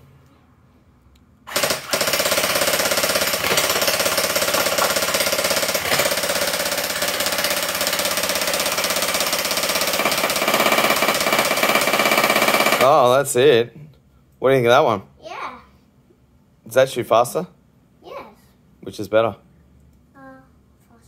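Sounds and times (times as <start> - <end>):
toy rifle firing full auto: 1.5 - 13.0.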